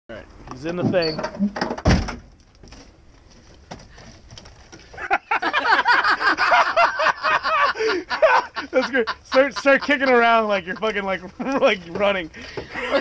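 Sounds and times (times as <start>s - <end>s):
men laughing loudly: 4.9s - 13.0s.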